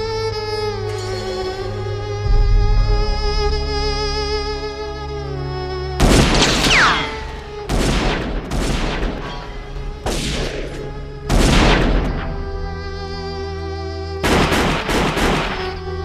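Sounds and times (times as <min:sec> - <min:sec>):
string score: 0:00.0 - 0:16.0
heavy gunshots with ringing tail: 0:06.0 - 0:12.5, 0:14.2 - 0:15.8.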